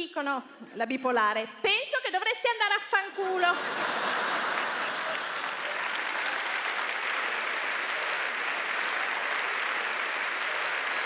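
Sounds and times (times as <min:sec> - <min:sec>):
audience applauding: 0:03.7 - 0:11.0.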